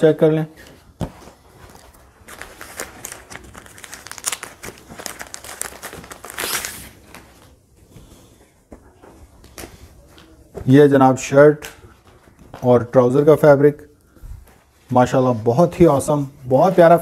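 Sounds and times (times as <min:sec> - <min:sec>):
plastic bag crinkling: 0:01.6 - 0:07.3.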